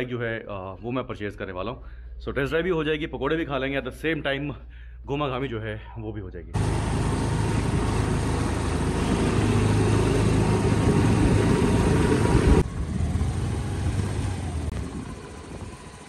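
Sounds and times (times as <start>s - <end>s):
road and wind noise: 6.6s - 16.0s
scooter engine running: 6.6s - 16.0s.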